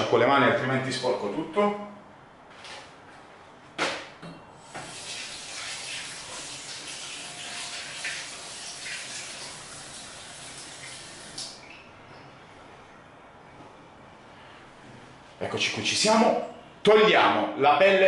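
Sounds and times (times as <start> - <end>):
tap water running: 4.6 - 11.8
water splashing in sink: 4.7 - 11.8.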